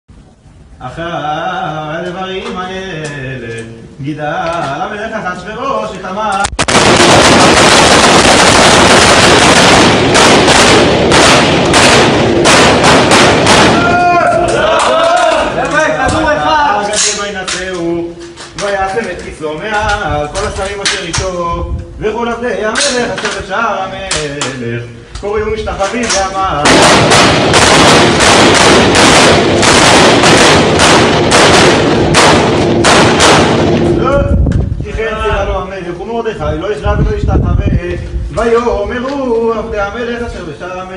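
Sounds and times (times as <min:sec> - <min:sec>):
rifle volley: 0:06.6 - 0:14.7, 0:26.6 - 0:34.0.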